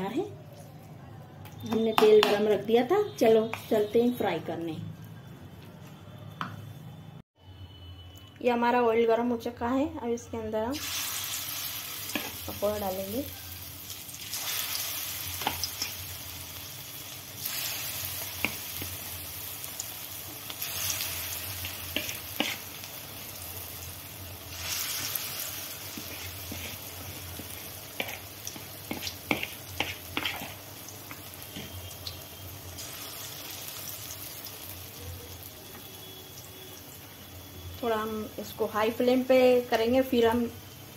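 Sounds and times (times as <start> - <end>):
batter deep-frying in oil: 10.2 - 40.9.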